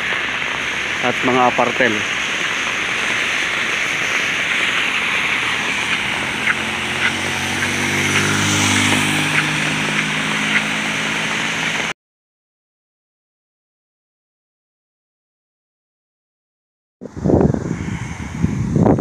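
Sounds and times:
rain hiss: 0:00.0 - 0:11.9, 0:17.1 - 0:18.9
vehicle passing on wet road: 0:00.0 - 0:12.0
raindrop taps: 0:02.1 - 0:11.9.

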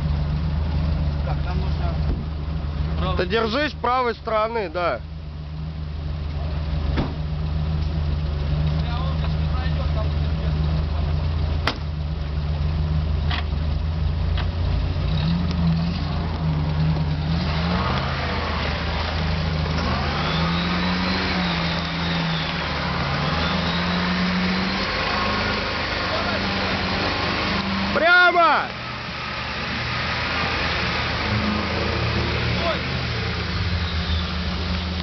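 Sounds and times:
off-road vehicle engine revving: 0:00.0 - 0:35.0
tyres splashing through mud: 0:14.4 - 0:35.0.

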